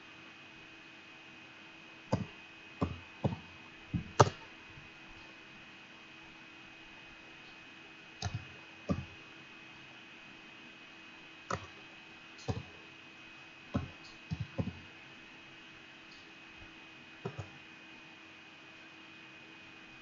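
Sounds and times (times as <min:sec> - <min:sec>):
faint electrical hum: 0:00.0 - 0:20.0
keyboard keys clicking: 0:04.0 - 0:04.4, 0:08.2 - 0:09.1.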